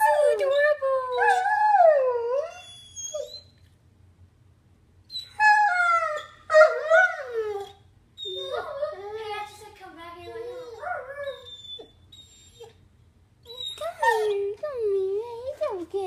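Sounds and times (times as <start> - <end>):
puppy howling: 0.0 - 3.4, 5.1 - 9.5, 10.2 - 12.7, 13.5 - 14.6.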